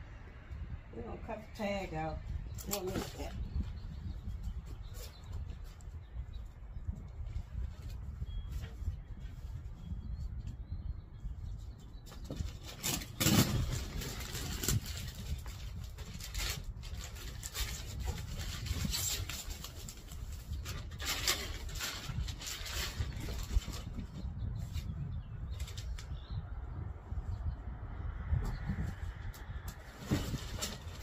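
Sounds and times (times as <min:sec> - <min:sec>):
steady low rumble: 0:00.0 - 0:02.6.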